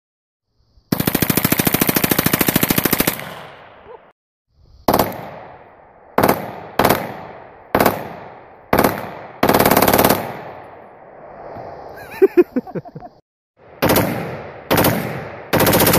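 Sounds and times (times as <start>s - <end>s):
pistol firing rapid bursts: 0.9s - 3.5s, 4.9s - 5.5s, 6.2s - 10.4s, 13.7s - 15.9s
automatic gunfire bursts: 6.2s - 10.4s, 13.8s - 15.9s.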